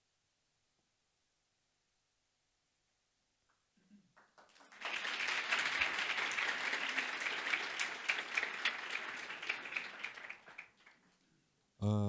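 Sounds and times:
audience applauding: 0:04.2 - 0:11.2.

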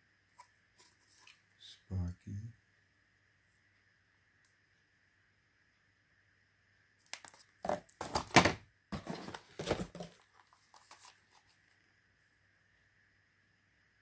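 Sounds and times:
packaging crinkling: 0:07.0 - 0:11.6.

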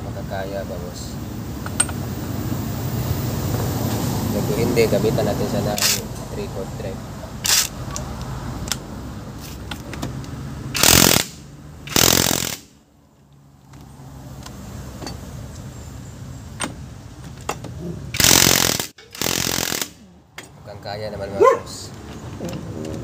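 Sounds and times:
impact wrench hammering: 0:10.8 - 0:12.7, 0:18.2 - 0:20.5.

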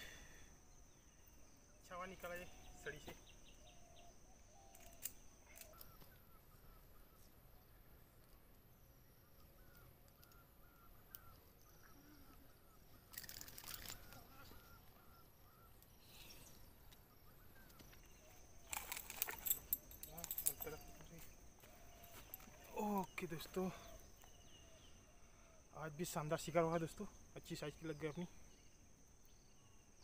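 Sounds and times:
small bird chirps: 0:08.6 - 0:25.6.

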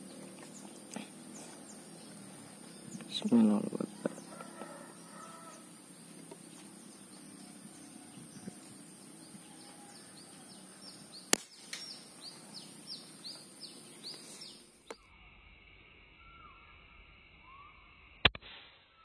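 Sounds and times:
faint outdoor background: 0:00.0 - 0:19.0
air rifle shot: 0:18.2 - 0:18.9.

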